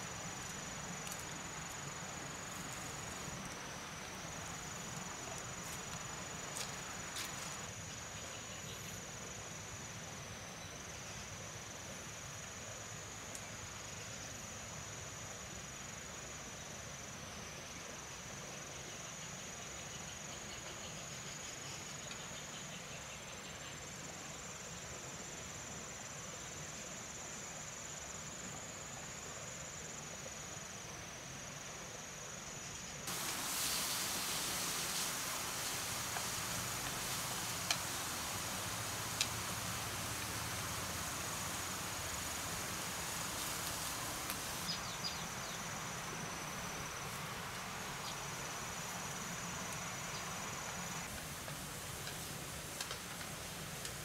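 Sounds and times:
loud broad hiss: 0.0 - 8.2, 33.0 - 54.0
insects shrilling: 33.0 - 54.0.

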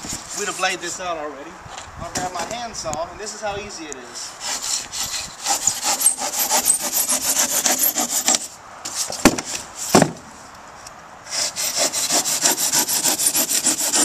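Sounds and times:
handsaw rasping through foam: 4.4 - 9.1, 11.3 - 14.0.

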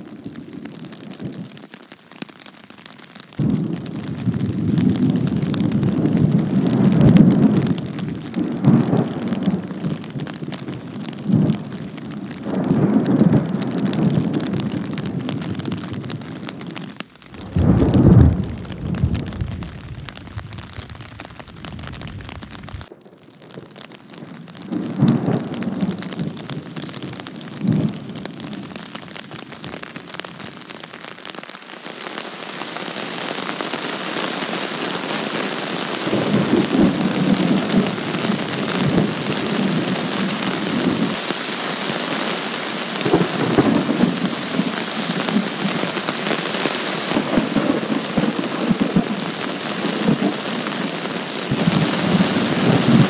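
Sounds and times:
heavy rain falling: 0.0 - 53.0
rolling thunder rumbling: 3.4 - 23.2
sharp thunder cracks: 17.3 - 23.0.

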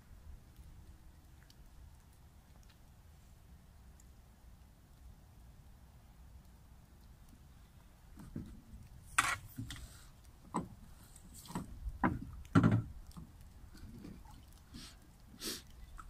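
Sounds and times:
knocks in aluminium boat: 11.5 - 13.0.

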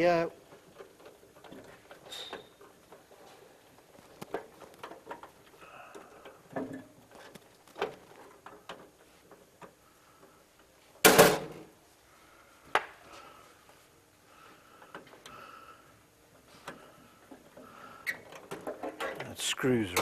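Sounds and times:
small clicks and knocks: 0.5 - 10.4.

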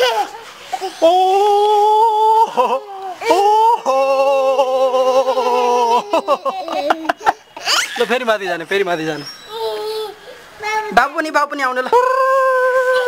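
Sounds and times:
man calling ooooh: 1.0 - 6.1, 11.9 - 13.0.

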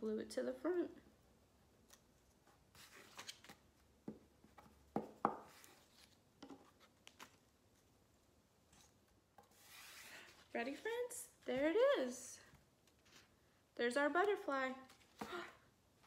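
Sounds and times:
paper rustling: 12.8 - 13.4.

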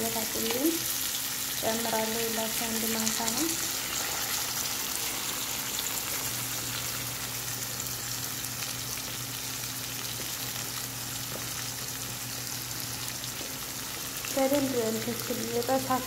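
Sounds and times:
low steady hum: 0.0 - 16.0
steaks sizzling in a pan: 0.0 - 16.0.

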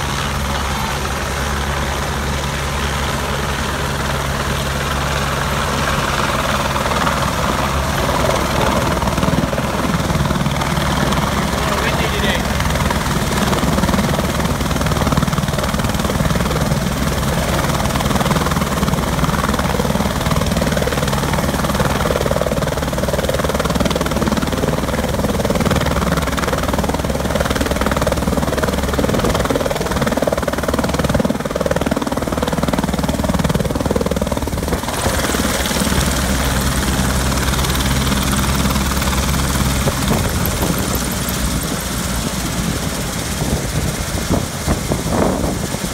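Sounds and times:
helicopter rotor chop and whine: 0.0 - 45.9.

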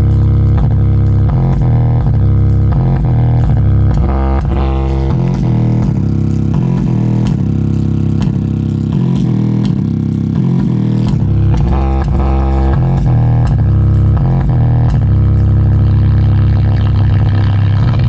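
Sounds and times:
deep bass notes through speaker: 0.0 - 18.0.

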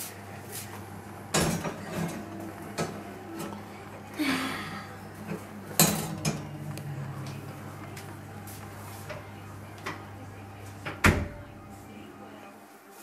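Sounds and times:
low steady hum: 0.1 - 12.6
wire oven rack scraping and clattering: 0.5 - 3.7, 5.1 - 7.3.

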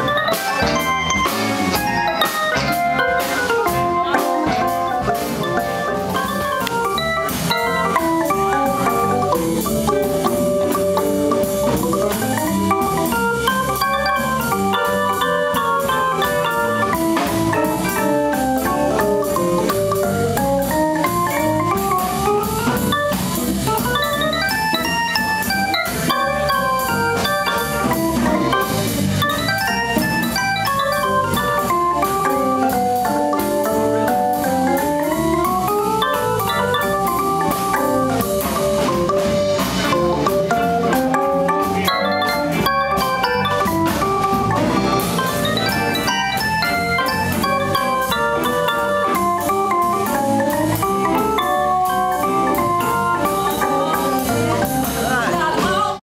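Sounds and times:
drum kit: 0.0 - 56.0
electric keyboard: 0.0 - 56.0.

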